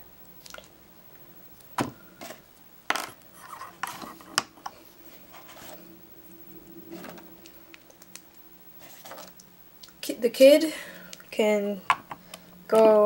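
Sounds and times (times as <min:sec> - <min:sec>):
soft rubbing rustle: 0:03.3 - 0:06.0.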